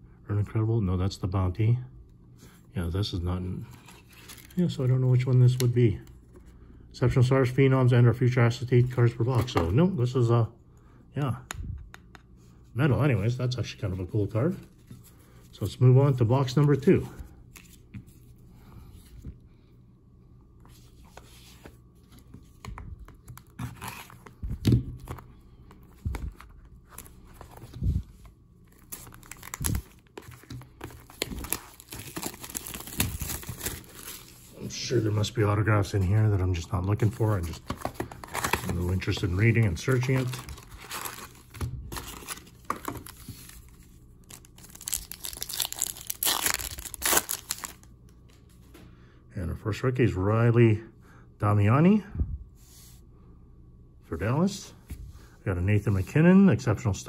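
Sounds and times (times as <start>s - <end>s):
cellophane crinkling: 28.7s - 34.9s, 36.8s - 47.9s
wrapper crackling as torn open: 30.8s - 34.2s, 39.9s - 43.2s, 44.2s - 47.9s.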